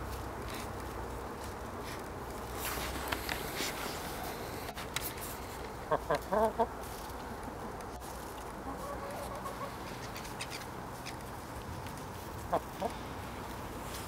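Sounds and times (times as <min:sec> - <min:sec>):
chickens clucking: 0:05.6 - 0:13.6.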